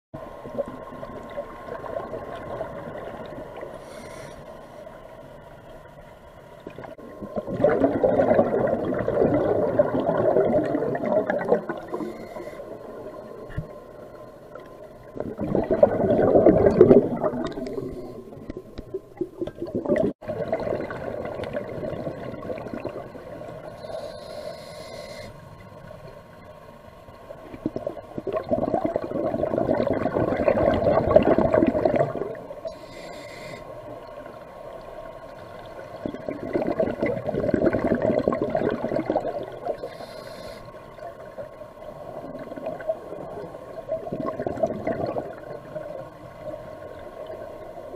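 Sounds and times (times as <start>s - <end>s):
scuba regulator breathing underwater: 3.8s - 4.8s, 11.6s - 13.0s, 23.6s - 25.5s, 32.6s - 33.8s, 39.2s - 40.8s.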